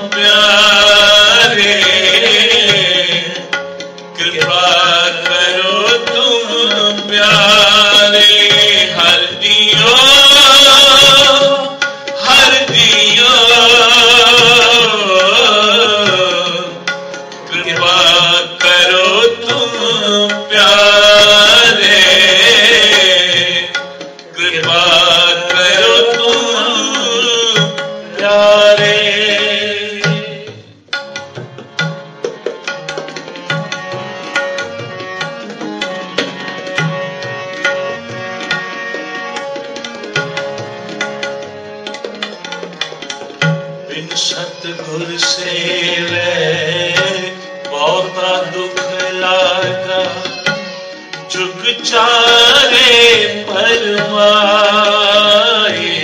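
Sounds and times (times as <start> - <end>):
man singing a hymn: 0.0 - 3.4, 4.2 - 16.8, 17.5 - 23.7, 24.4 - 30.5, 43.9 - 50.4, 51.3 - 56.0
harmonium: 0.0 - 56.0
tabla: 0.0 - 56.0.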